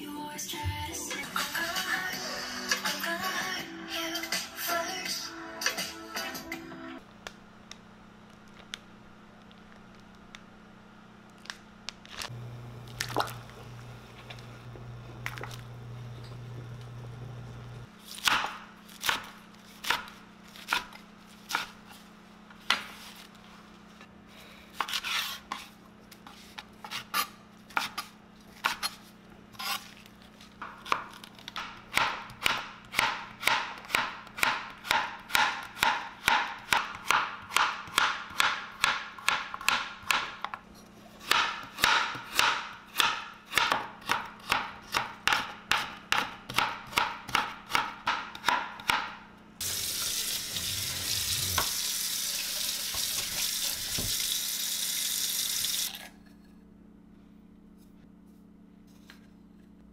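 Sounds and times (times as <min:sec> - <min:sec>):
knife chopping on cutting board: 0:18.2 - 0:21.8, 0:30.6 - 0:40.6, 0:41.2 - 0:49.2.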